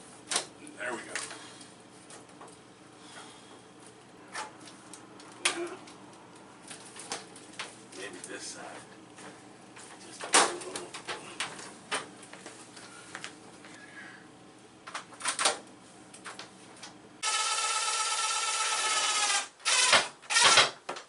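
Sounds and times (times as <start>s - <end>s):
cordless drill whining: 17.2s - 20.8s.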